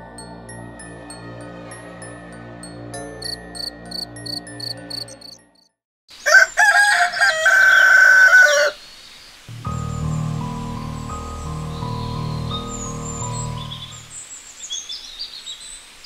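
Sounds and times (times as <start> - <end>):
soft chiming music: 0.0 - 5.6, 9.5 - 14.2
rooster crowing: 6.1 - 8.8
low background music: 9.5 - 14.2.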